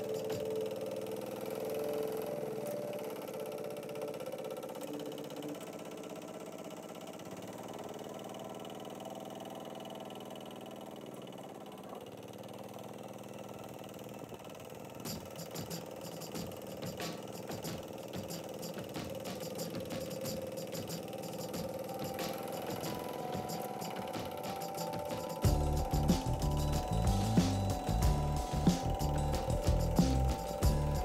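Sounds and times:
diesel tractor engine running: 25.4 - 31.0.

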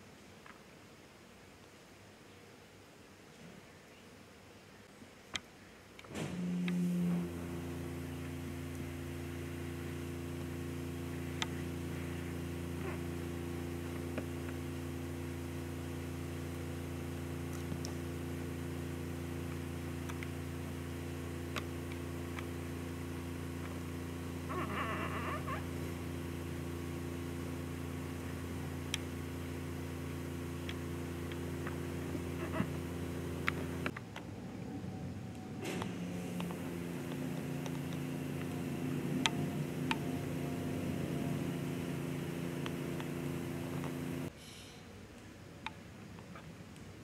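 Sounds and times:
steady mechanical hum: 0.0 - 47.0.

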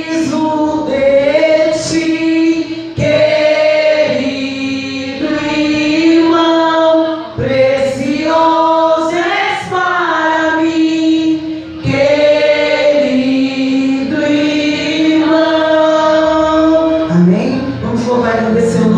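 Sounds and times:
woman singing a hymn: 0.0 - 17.1
voices singing along: 0.0 - 18.9.

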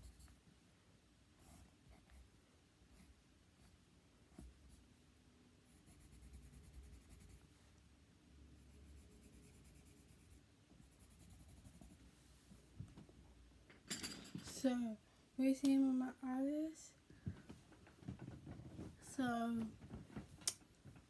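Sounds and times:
pen scratching on paper: 5.7 - 7.4, 8.6 - 12.0.

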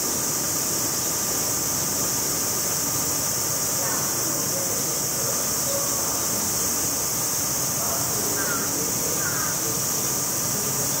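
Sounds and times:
cicada chorus buzzing: 0.0 - 11.0.

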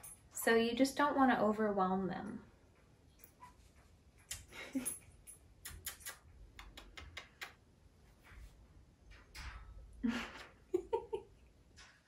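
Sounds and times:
kissing smacks and clicks: 4.3 - 4.5, 5.6 - 7.6.

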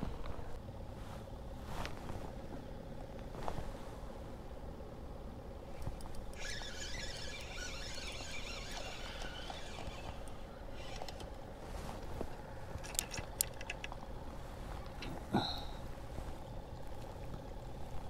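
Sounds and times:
fishing reel ticking: 5.8 - 11.4
brief squeak: 6.4 - 11.1.

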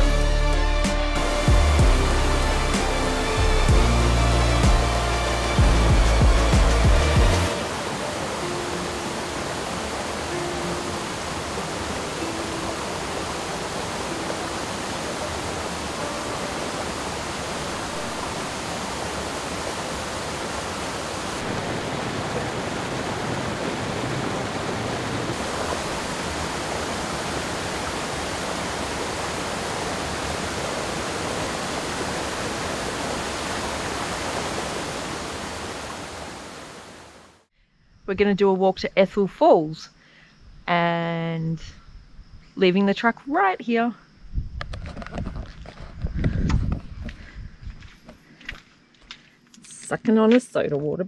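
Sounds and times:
waterfall rushing over rock: 1.2 - 37.5.

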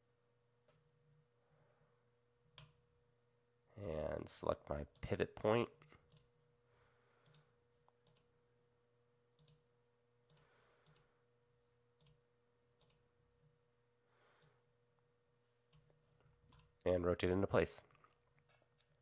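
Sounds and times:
faint steady hum: 0.0 - 19.0
computer mouse clicks: 6.1 - 6.3, 7.2 - 8.3, 9.4 - 9.6, 10.3 - 11.1, 12.0 - 12.2, 12.8 - 13.0.

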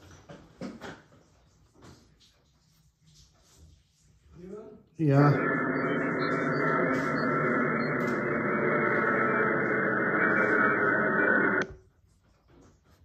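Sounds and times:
muffled rushing static noise: 5.2 - 11.6.

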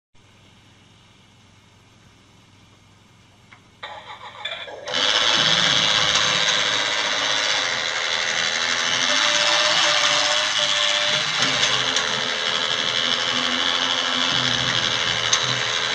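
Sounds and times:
toy train motor whirring: 3.8 - 15.9.

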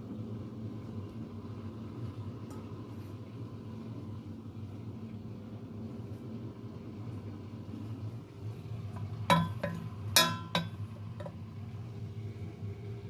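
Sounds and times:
steady low hum: 0.0 - 13.0
wooden spoon clinking metal pot: 9.3 - 11.4.

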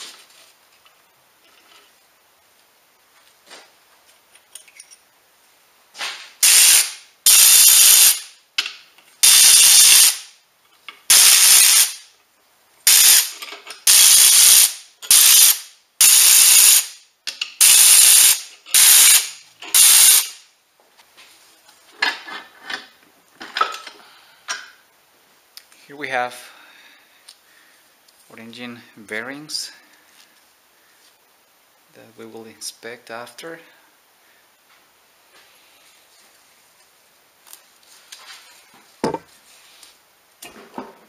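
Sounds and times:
electric ratchet spinning bolts: 6.4 - 8.3, 9.2 - 10.3, 11.1 - 12.1, 12.9 - 17.0, 17.6 - 20.4.

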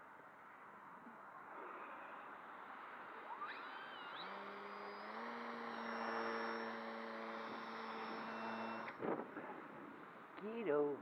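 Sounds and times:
electric motor whine: 1.6 - 9.0.

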